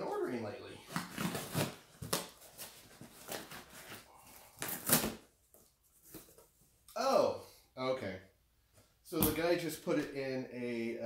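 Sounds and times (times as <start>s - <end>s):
cardboard ripping: 0.8s - 5.3s.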